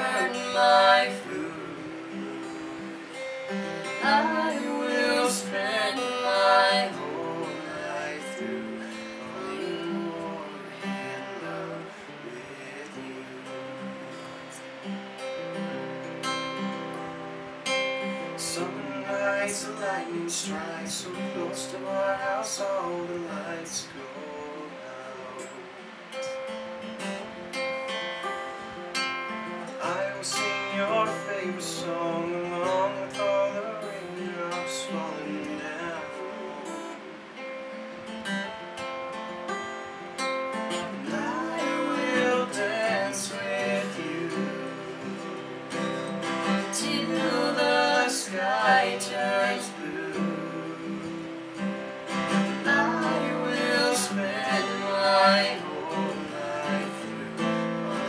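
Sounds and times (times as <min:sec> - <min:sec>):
person singing: 0:00.0 - 0:14.8, 0:40.7 - 0:51.7, 0:52.3 - 0:58.0
acoustic guitar strumming: 0:00.0 - 0:58.0.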